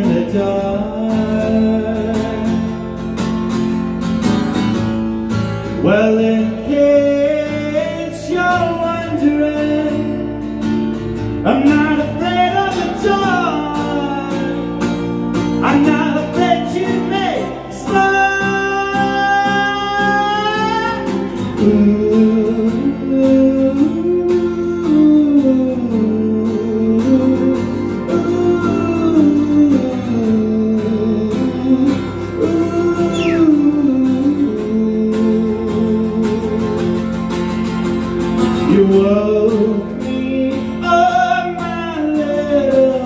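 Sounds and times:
electric guitar solo: 32.8s - 33.9s.

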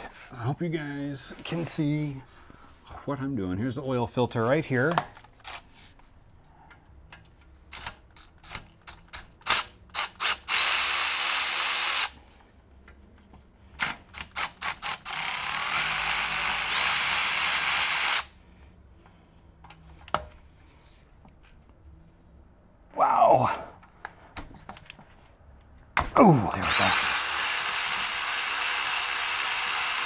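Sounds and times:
electric ratchet spinning: 9.4s - 12.2s, 13.8s - 18.3s, 26.6s - 30.0s.

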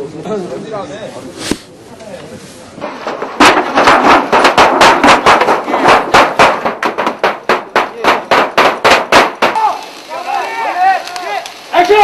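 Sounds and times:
loud sharp bangs with ringing: 2.9s - 9.7s.

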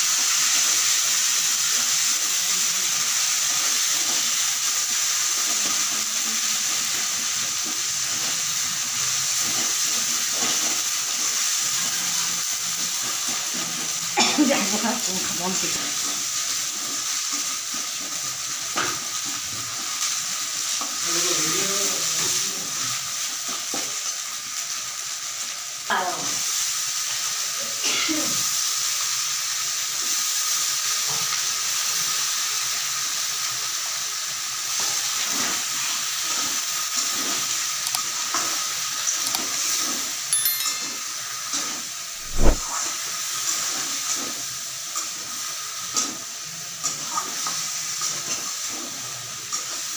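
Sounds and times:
food sizzling in oil: 0.0s - 49.9s
sharp metal clinks: 40.3s - 41.1s.

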